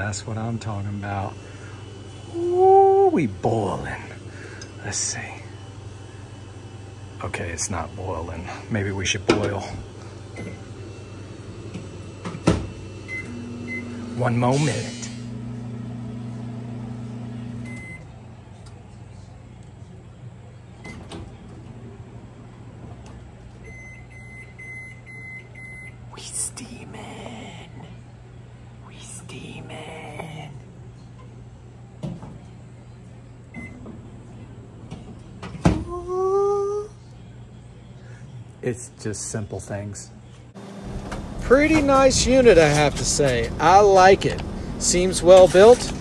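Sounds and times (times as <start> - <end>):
microwave humming: 0.0 - 26.2, 40.2 - 46.0
man saying ooh: 2.3 - 3.4, 35.8 - 37.0.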